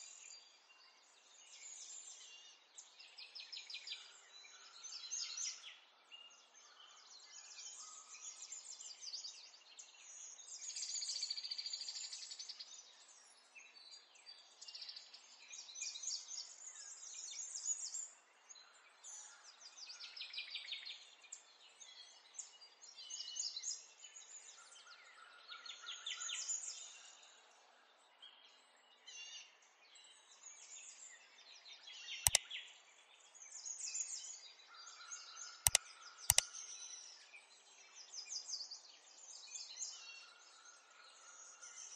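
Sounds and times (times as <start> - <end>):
sharp click: 35.7 - 36.5.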